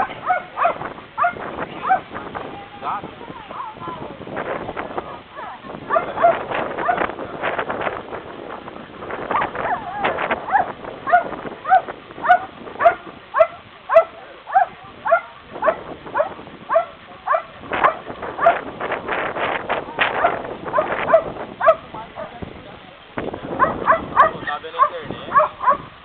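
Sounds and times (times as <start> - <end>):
dog barking: 0.0 - 2.1, 5.1 - 7.1, 9.3 - 18.7, 20.1 - 22.4, 23.6 - 26.0.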